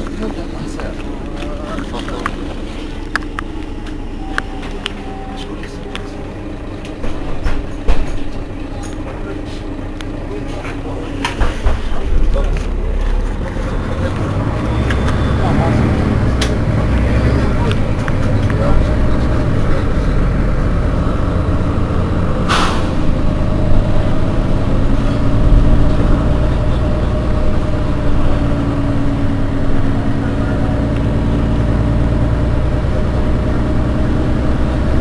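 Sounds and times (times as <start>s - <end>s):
bus engine idling: 0.0s - 35.0s
air brake hiss: 22.5s - 23.0s.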